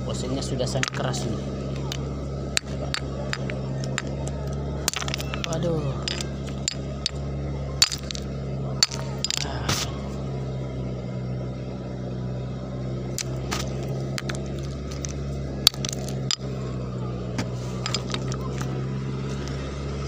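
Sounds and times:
engine humming: 0:00.0 - 0:20.0
stones knocking together: 0:02.6 - 0:07.2, 0:07.8 - 0:08.2, 0:08.8 - 0:09.9, 0:13.2 - 0:16.5, 0:17.4 - 0:18.7.

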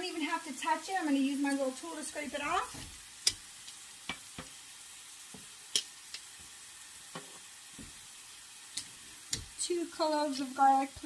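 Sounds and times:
meat and onion sizzling in a skillet: 0:00.0 - 0:11.0
utensils clicking and tapping: 0:08.7 - 0:09.5.

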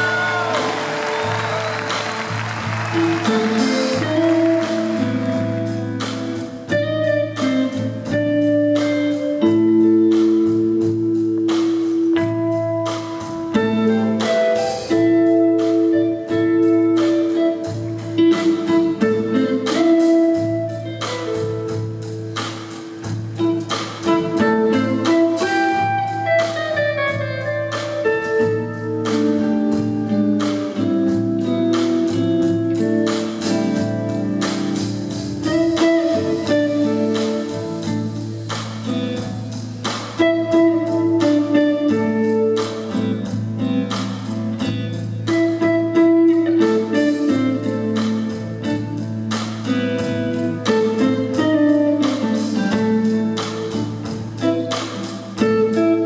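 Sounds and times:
bass line: 0:00.0 - 0:07.3
drums and cymbals: 0:00.0 - 0:56.0
electric guitar melody: 0:00.0 - 0:56.0.

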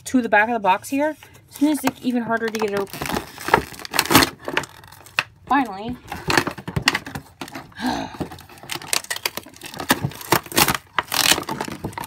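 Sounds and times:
packaging crinkling and rattling: 0:01.7 - 0:12.0
packaging tearing: 0:02.5 - 0:05.3, 0:08.4 - 0:12.0.

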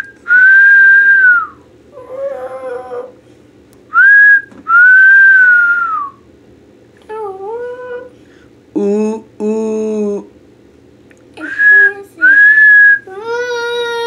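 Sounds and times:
person whistling: 0:00.3 - 0:01.6, 0:04.0 - 0:06.2, 0:11.4 - 0:13.0
child's high voice: 0:13.0 - 0:14.0.

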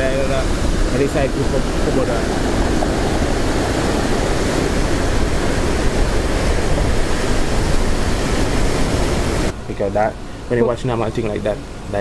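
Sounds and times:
surf washing over pebbly shore: 0:00.0 - 0:09.5.

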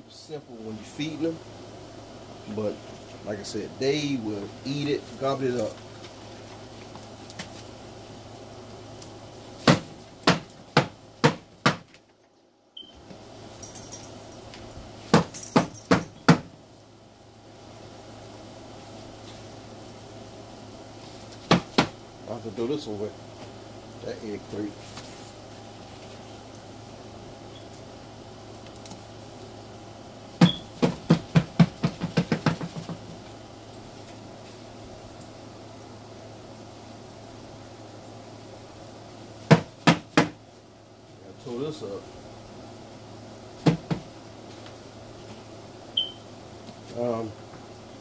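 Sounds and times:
sharp knocks on hard surface: 0:09.6 - 0:11.9, 0:21.5 - 0:22.0, 0:30.4 - 0:33.1, 0:39.5 - 0:40.4
sharp knocks: 0:30.4 - 0:33.1.

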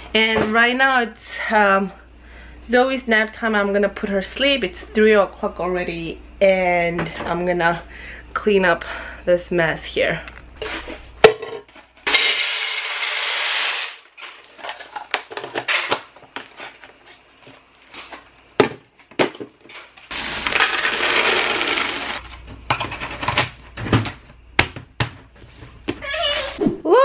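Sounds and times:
cereal pouring into plastic container: 0:20.1 - 0:22.2.

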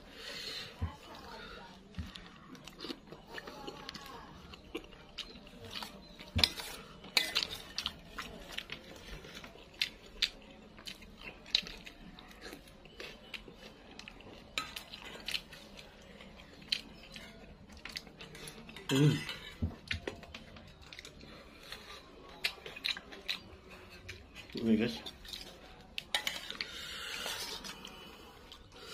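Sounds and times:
spoon scraping metal bowl: 0:26.1 - 0:27.8.

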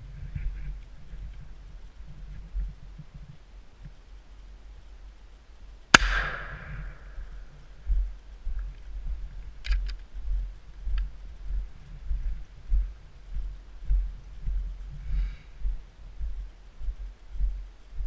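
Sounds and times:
shotgun shot: 0:05.9 - 0:07.1
dull low thumps: 0:05.9 - 0:18.0.

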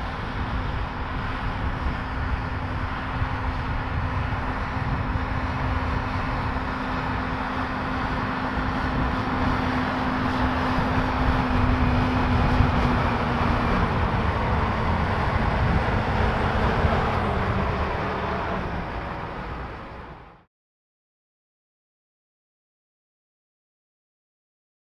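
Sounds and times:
tractor diesel engine under load: 0:00.0 - 0:20.5.

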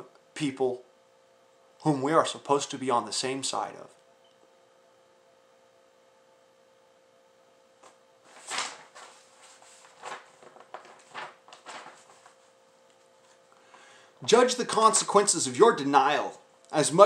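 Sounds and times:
faint steady hum: 0:00.0 - 0:17.0
rustling and handling noises: 0:07.8 - 0:13.7.

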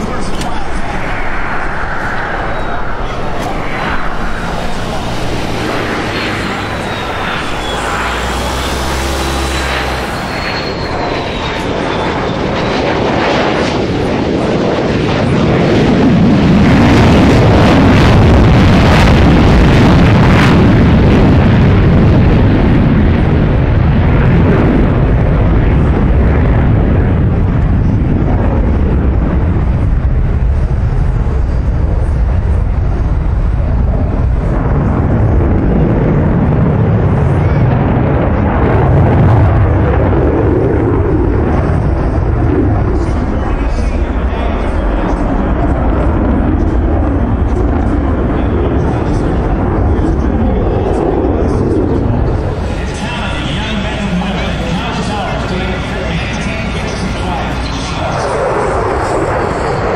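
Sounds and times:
afterburner crackling: 0:00.0 - 0:59.9
heavy jet rumble: 0:00.0 - 0:59.9.

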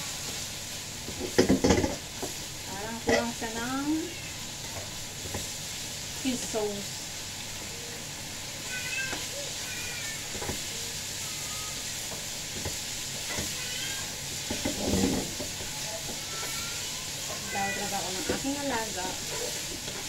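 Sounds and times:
meat sizzling in a wok: 0:00.0 - 0:20.0
spatula stirring and scraping: 0:08.6 - 0:20.0.

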